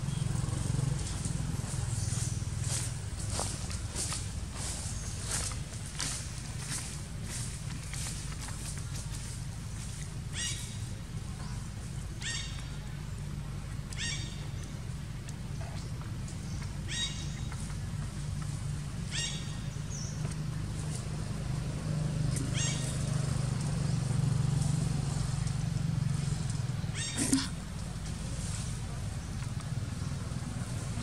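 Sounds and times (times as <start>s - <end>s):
high falling animal calls: 26.9s - 27.6s.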